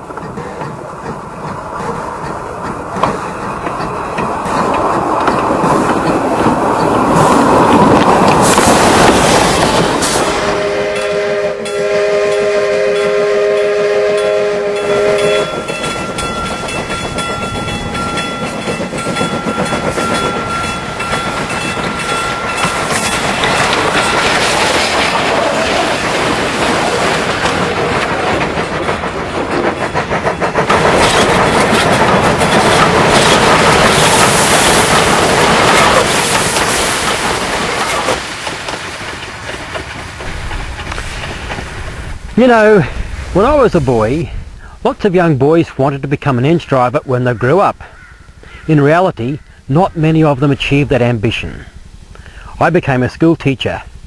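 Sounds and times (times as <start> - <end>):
rail clatter: 0.0 - 44.3
steam locomotive running: 0.0 - 54.0
steam whistle: 10.2 - 15.7.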